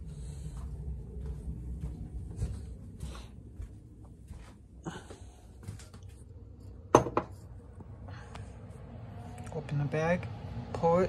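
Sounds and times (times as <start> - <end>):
cup knocking on countertop: 6.9 - 7.4.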